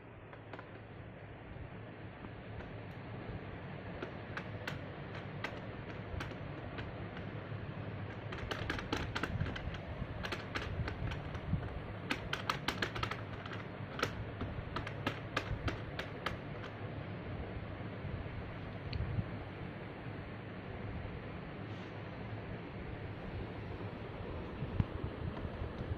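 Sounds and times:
toy laptop keys clicking: 3.8 - 16.8.

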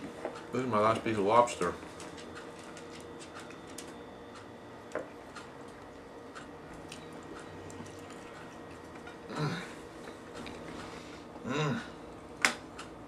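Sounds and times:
man chewing: 2.0 - 11.0.

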